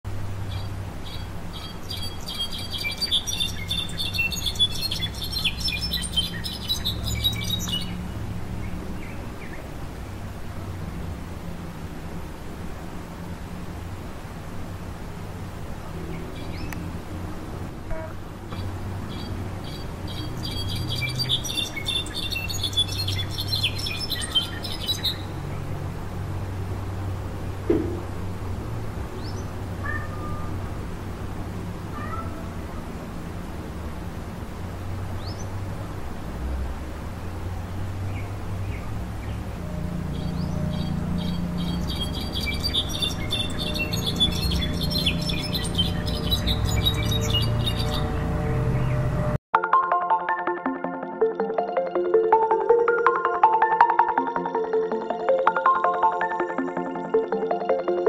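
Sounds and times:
songbird singing rapid high notes: 0:00.5 - 0:08.1, 0:18.0 - 0:25.5, 0:38.1 - 0:49.1.

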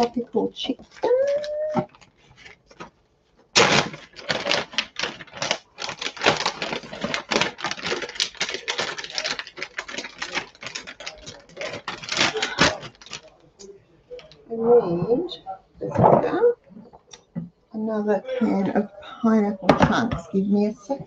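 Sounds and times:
plastic bag crinkling: 0:00.0 - 0:13.5.

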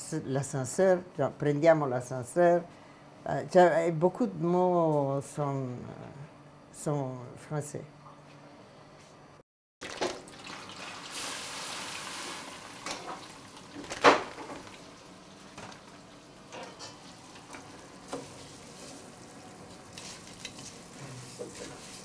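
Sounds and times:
food sizzling in a pan: 0:10.7 - 0:13.8, 0:14.6 - 0:22.0
pans and utensils clattering: 0:16.5 - 0:18.9.

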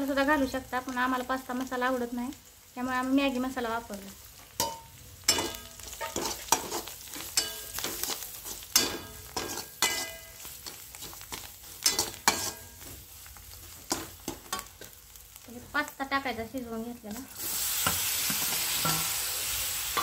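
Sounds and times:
faint sizzle of frying: 0:00.0 - 0:20.0
ladle scraping metal pan: 0:04.6 - 0:11.2, 0:11.8 - 0:12.7.

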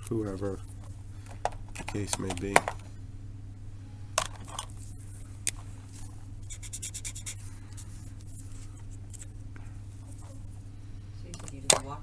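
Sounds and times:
steady low hum: 0:00.0 - 0:12.0
marker scratching on paper: 0:06.4 - 0:09.3.

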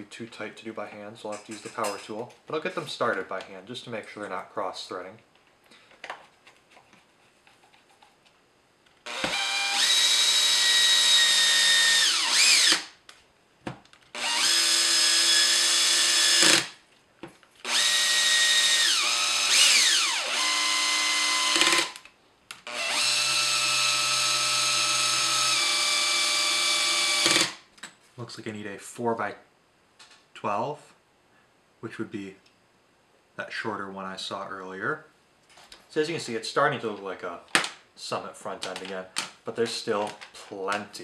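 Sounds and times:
cordless drill motor whine: 0:09.0 - 0:12.9, 0:14.1 - 0:16.7, 0:17.6 - 0:22.0, 0:22.6 - 0:27.6.

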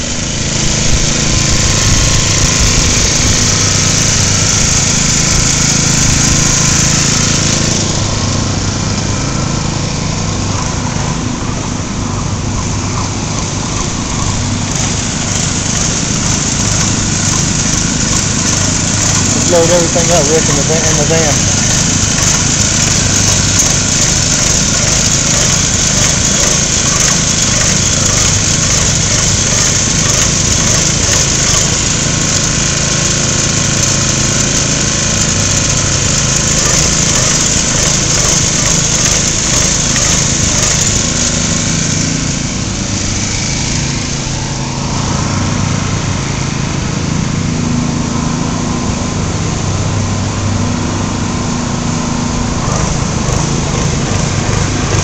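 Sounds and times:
small gasoline engine running: 0:00.0 - 0:55.0
paint spray hiss: 0:14.3 - 0:34.4.

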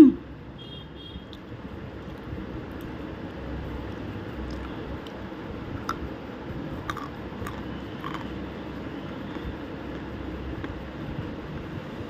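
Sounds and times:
low background noise: 0:00.0 - 0:12.0.

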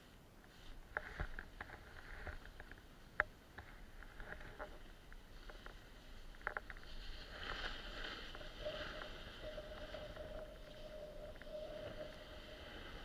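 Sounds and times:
steady hum: 0:05.9 - 0:13.0
snowboard scraping over snow: 0:06.8 - 0:13.0.

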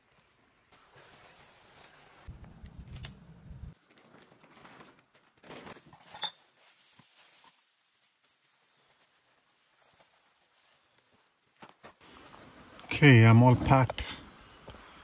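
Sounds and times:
rustling: 0:03.7 - 0:12.0.

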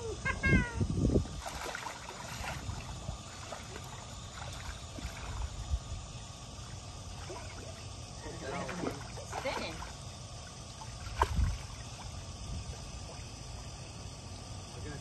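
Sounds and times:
pool water splashing: 0:01.3 - 0:14.7.

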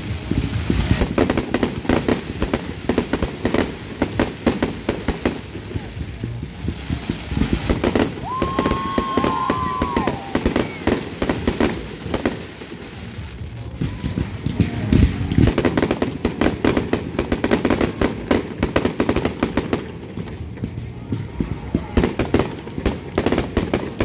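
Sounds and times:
fireworks bangs and crackles: 0:00.0 - 0:24.0.

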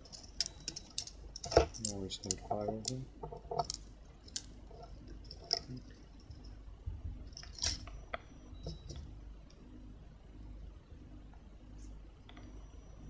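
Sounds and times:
soldering iron clicks and crackles: 0:00.1 - 0:05.7.

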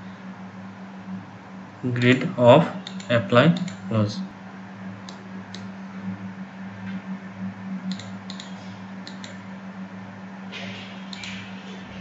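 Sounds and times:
steady low hum: 0:00.0 - 0:12.0
computer mouse clicking: 0:02.8 - 0:03.9, 0:07.9 - 0:09.4, 0:11.1 - 0:11.4.

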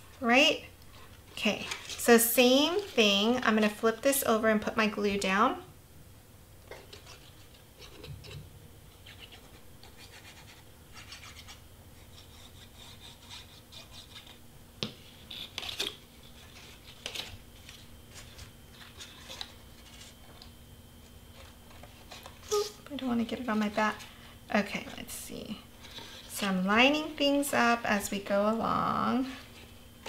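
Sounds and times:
cardstock scratching and rubbing: 0:06.9 - 0:08.4, 0:09.0 - 0:14.4.

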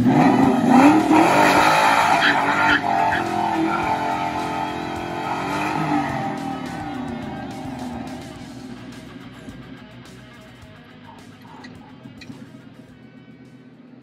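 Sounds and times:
car engine revving hard: 0:00.0 - 0:09.6
tyres spinning on pavement: 0:00.0 - 0:10.0.

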